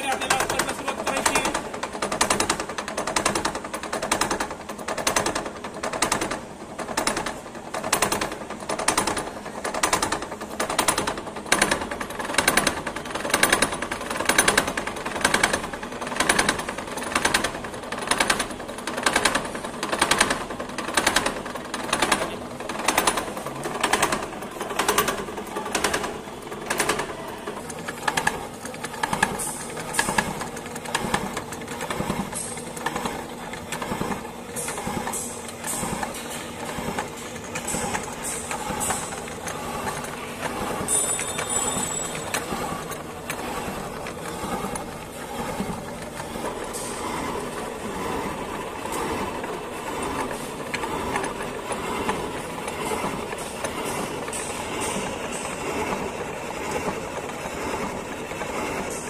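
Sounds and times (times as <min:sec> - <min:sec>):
milling cutter chattering on metal: 0:28.0 - 0:59.0.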